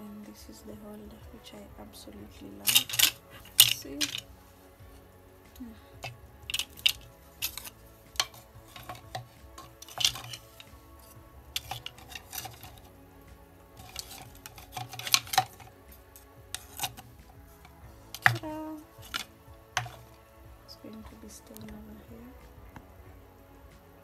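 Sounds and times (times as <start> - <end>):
kitchenware clinking: 2.6 - 4.3, 6.0 - 12.9, 13.8 - 15.7, 16.5 - 17.0, 18.1 - 20.2.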